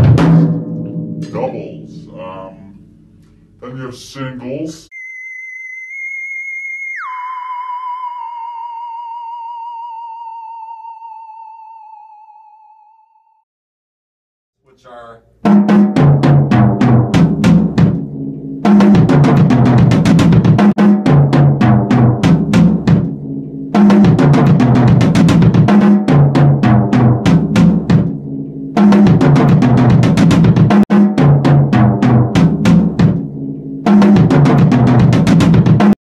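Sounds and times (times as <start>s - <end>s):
drum rolls on snare and toms: 0.0s - 2.2s, 15.5s - 36.0s.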